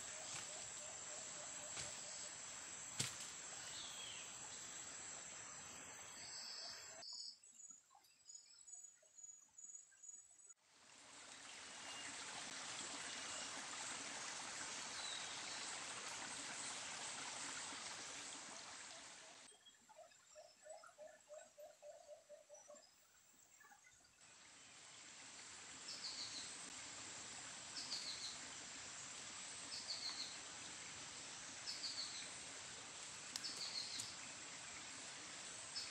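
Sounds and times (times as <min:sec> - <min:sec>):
steady even hiss: 0:00.0 - 0:07.0, 0:24.4 - 0:35.9
faint ticks: 0:33.0 - 0:34.2.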